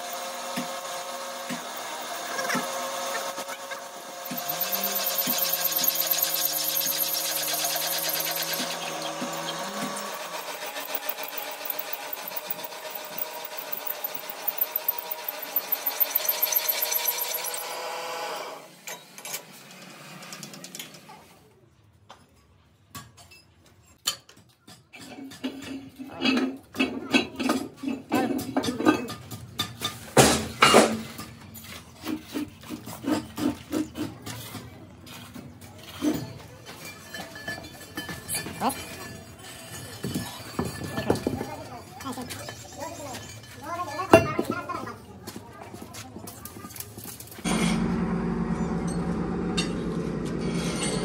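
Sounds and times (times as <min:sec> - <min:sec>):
drill press drilling metal: 0:00.0 - 0:20.6
metal clanks and knocks: 0:22.1 - 0:44.7.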